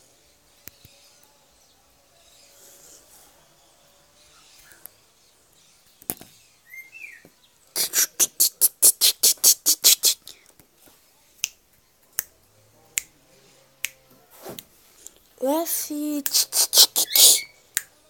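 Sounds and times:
person clicking tongue: 7.8 - 10.4, 16.1 - 17.9.

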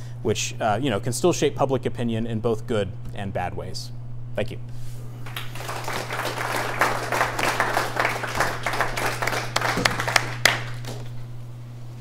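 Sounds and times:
audience applauding: 5.2 - 11.1.

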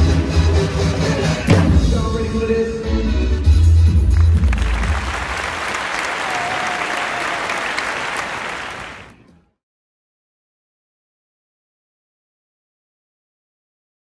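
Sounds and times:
drums playing: 1.5 - 2.4, 3.6 - 5.6
audience applauding: 4.0 - 9.3.

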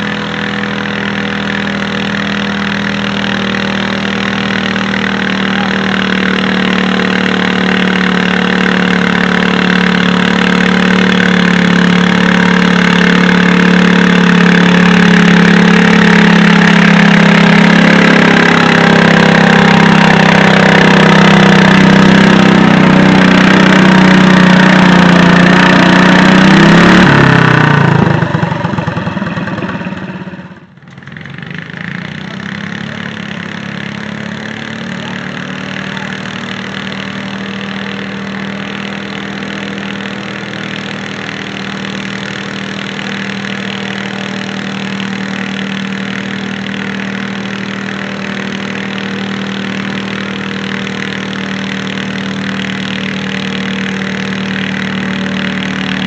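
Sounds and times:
tractor engine running hard: 0.0 - 56.0
tractor engine running steadily: 0.0 - 56.0.

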